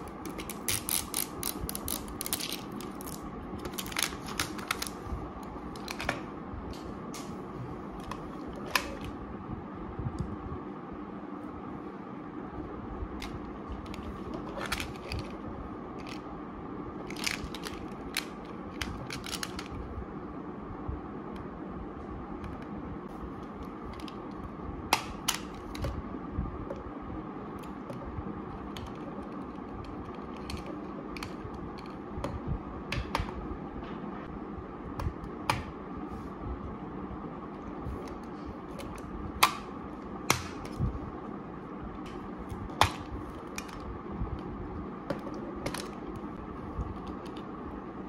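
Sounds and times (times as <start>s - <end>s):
low background hum: 0.0s - 48.0s.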